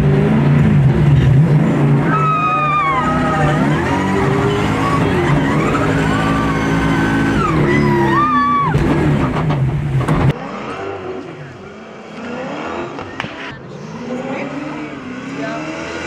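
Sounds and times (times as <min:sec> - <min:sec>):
car engine revving hard: 0:00.0 - 0:16.0
distant car engine and tyres: 0:00.0 - 0:16.0
tyres squealing: 0:02.0 - 0:09.0.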